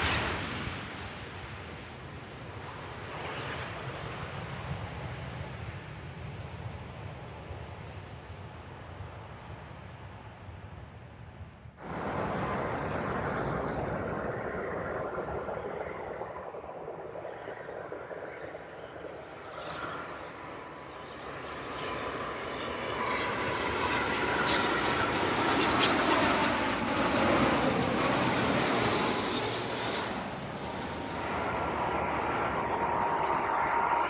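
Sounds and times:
jet engine roar: 0.0 - 10.9, 11.8 - 34.0
high-pitched engine whine: 11.8 - 34.0.

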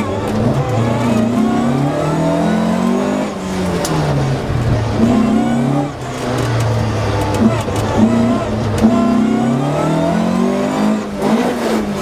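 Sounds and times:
rally car engine revving: 0.0 - 12.0.

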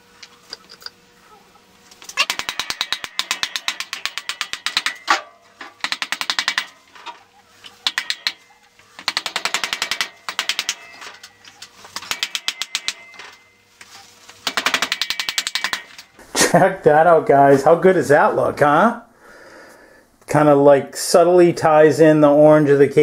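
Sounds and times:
hammer tapping metal axle: 2.2 - 13.5, 14.4 - 16.1.

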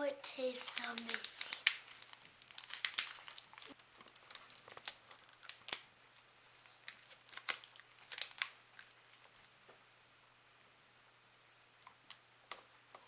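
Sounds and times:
wrapper crinkling as torn open: 0.6 - 5.9, 6.5 - 9.5.

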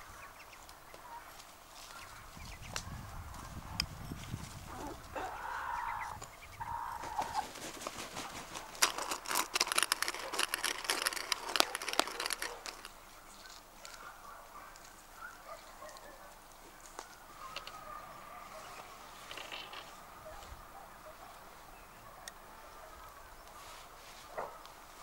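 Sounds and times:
chickens clucking: 4.7 - 9.1
sharp crackling clicks: 7.8 - 14.1.

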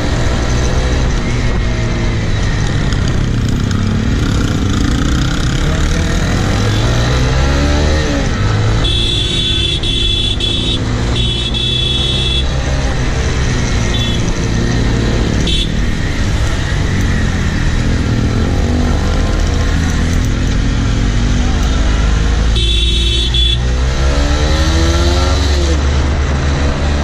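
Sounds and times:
motorcycle engine accelerating: 0.0 - 27.0
high-pitched vehicle horn honks: 8.8 - 12.6, 13.9 - 14.2, 22.6 - 23.7.

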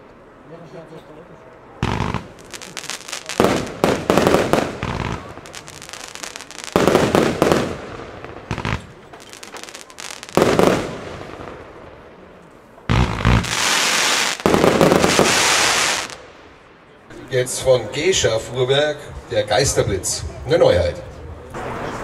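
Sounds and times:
fireworks bangs with crackling: 1.8 - 16.7.

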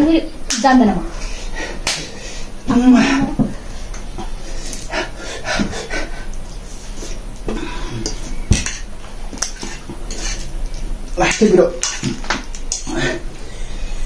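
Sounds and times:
fork scraping and clinking on plate: 8.1 - 10.5.

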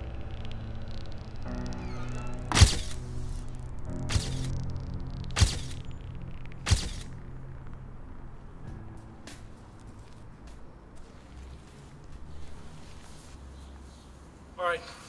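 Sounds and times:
dramatic film score music: 0.0 - 10.2
sharp loud music hits: 1.8 - 4.6, 5.2 - 5.9, 6.6 - 7.2.

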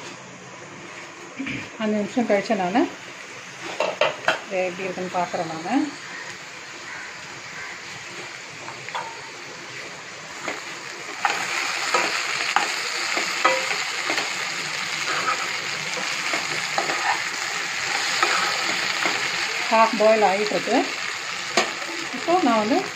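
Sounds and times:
food sizzling in oil: 0.6 - 22.9
spatula scraping a pan: 15.0 - 19.2.

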